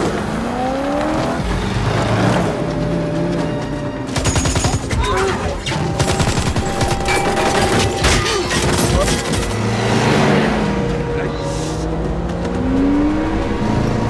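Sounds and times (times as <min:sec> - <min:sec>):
machine gun firing: 0:04.1 - 0:09.3.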